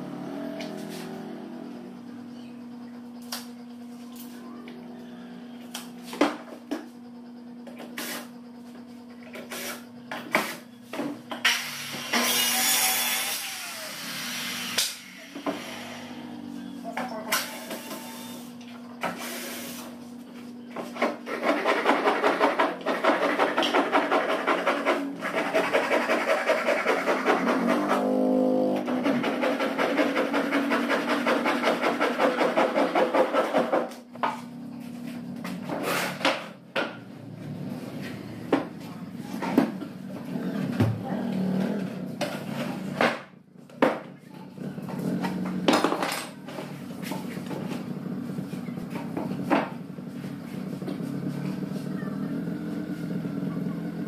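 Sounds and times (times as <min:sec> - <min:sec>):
boards and tools clattering: 0:20.7 - 0:37.1, 0:45.0 - 0:47.9
hand saw cutting plywood: 0:20.9 - 0:34.0.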